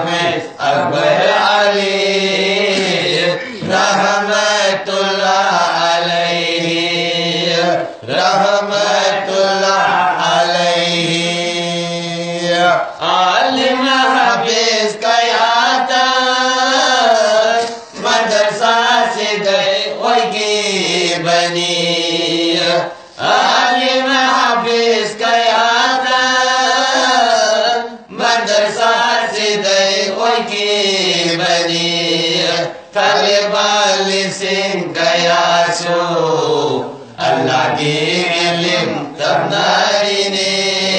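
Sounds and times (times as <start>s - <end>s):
man singing devotional song: 0.0s - 40.9s.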